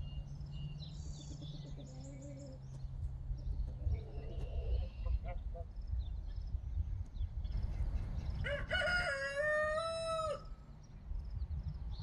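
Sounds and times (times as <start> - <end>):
rooster crowing: 8.4 - 10.6.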